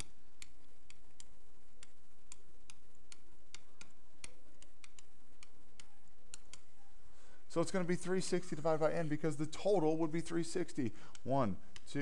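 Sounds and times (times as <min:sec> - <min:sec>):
stylus clicking on pen tablet: 0:00.0 - 0:06.8, 0:10.1 - 0:12.0
steady background hiss: 0:00.0 - 0:12.0.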